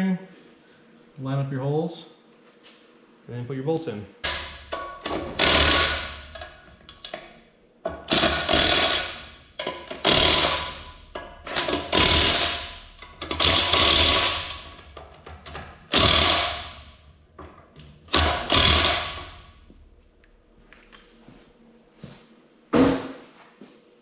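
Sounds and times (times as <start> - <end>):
cordless power tool bursts: 8.1 - 9.2, 15.9 - 16.7.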